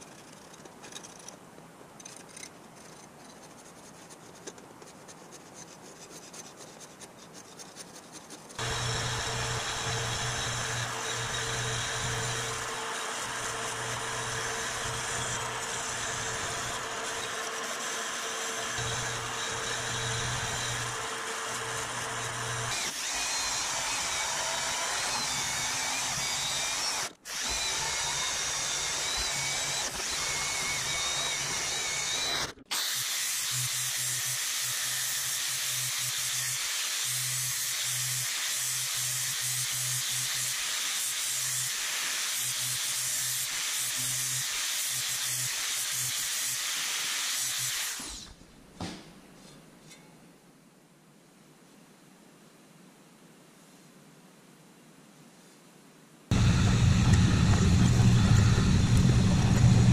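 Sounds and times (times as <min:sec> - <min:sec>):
band saw cutting steel: 0:08.5 - 0:48.4, 0:56.3 - 0:59.9
angle grinder grinding metal: 0:08.6 - 0:48.3, 0:56.3 - 0:59.9.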